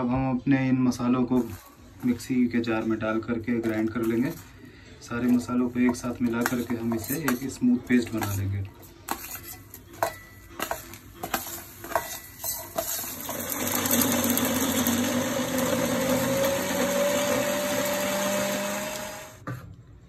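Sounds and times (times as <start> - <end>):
steel spoon scraping a plate: 5.2 - 14.4
electric mixer grinder humming: 13.1 - 19.4.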